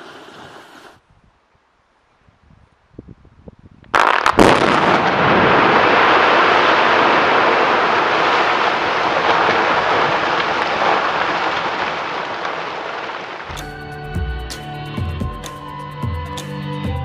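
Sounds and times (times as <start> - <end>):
sharp blast crack: 4.0 - 8.7
rubble roaring down: 4.0 - 13.5.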